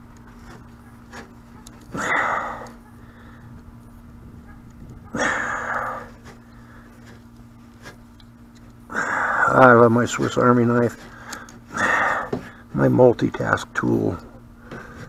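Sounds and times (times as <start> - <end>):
faint steady hum: 0.0 - 15.0
man breathing out heavily: 1.9 - 3.6, 5.1 - 7.2, 8.9 - 9.6, 11.0 - 12.7, 14.6 - 15.0.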